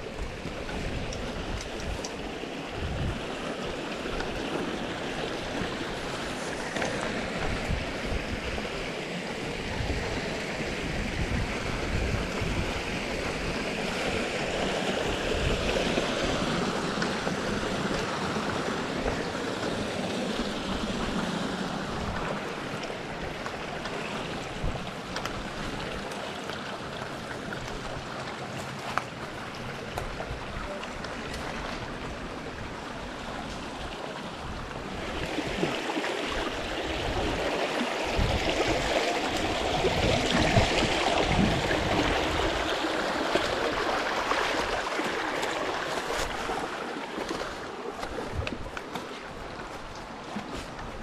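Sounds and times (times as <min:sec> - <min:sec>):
mountain stream rushing: 0:00.0 - 0:51.0.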